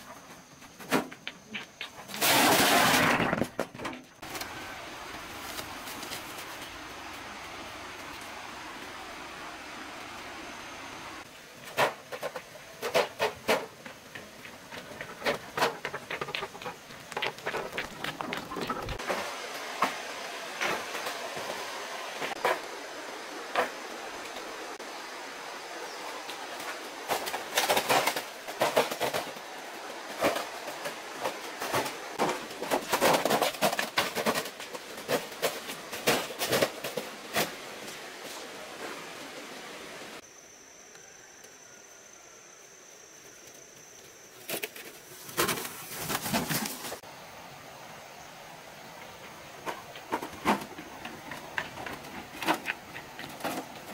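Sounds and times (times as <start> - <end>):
stones clattering together: 12.1 - 19.0.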